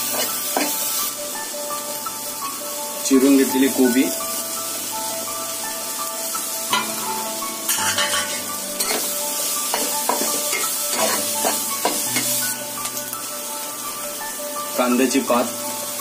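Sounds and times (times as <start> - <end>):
spatula scraping a pan: 0.0 - 0.9, 6.7 - 13.0
vegetables sizzling in a pan: 0.0 - 16.0.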